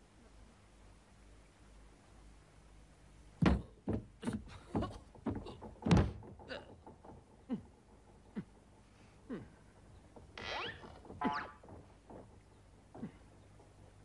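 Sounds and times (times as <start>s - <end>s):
heavy thuds and knocks on door: 3.4s - 7.4s.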